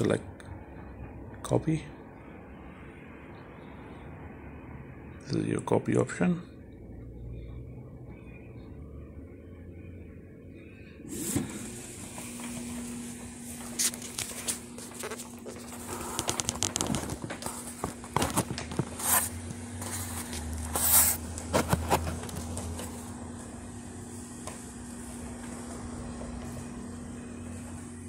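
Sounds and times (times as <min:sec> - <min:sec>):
scanner humming: 0:00.0 - 0:28.0
paper rustling and crackling: 0:13.6 - 0:23.0
sharp paper swishes: 0:19.0 - 0:22.1.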